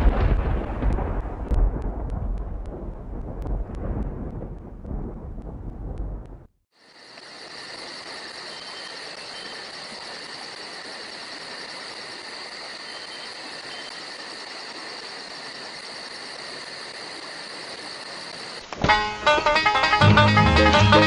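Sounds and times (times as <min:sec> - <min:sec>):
steady hiss: 0:06.8 - 0:19.5.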